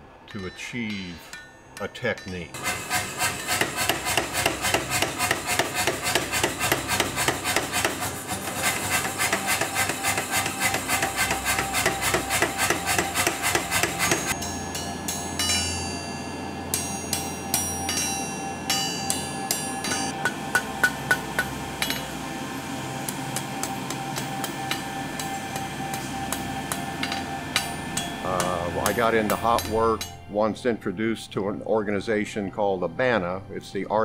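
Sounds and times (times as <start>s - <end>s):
low hum: 0.0s - 34.0s
hand hammer ringing on anvil: 0.3s - 2.6s, 10.9s - 22.2s, 23.4s - 30.3s
power hammer pounding steel: 2.5s - 16.0s, 16.7s - 30.2s.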